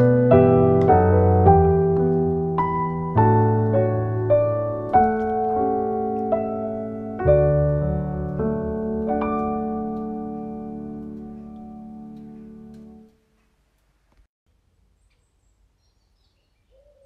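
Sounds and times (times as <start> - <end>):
slow gentle piano music: 0.0 - 13.6.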